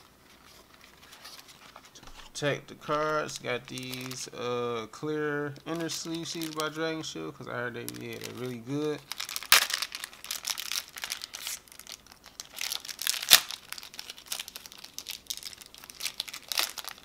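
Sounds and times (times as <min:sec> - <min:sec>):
plastic packaging crinkling: 0:00.0 - 0:17.0.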